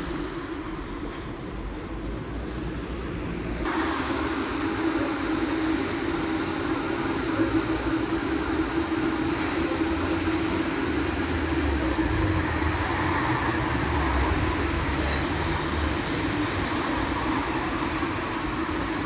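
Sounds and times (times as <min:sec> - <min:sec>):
vehicle running: 0:07.4 - 0:19.0.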